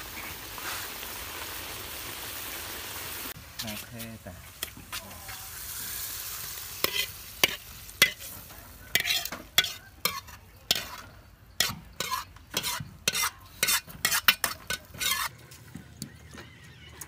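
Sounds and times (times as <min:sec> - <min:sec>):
metal ladle scraping a wok: 0:05.6 - 0:15.4.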